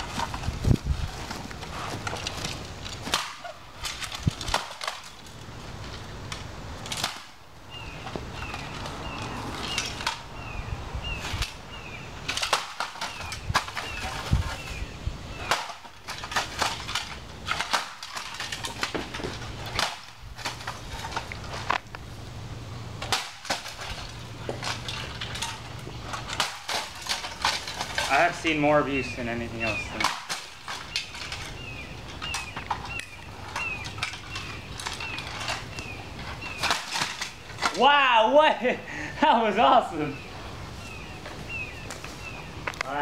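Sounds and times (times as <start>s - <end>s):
bird falling chirp: 7.7s - 16.3s, 28.9s - 38.0s.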